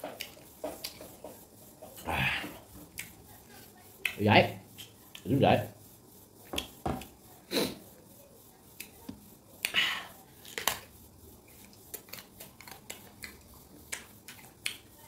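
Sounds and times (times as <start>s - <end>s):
crunching of mango being chewed: 11.6s - 14.8s.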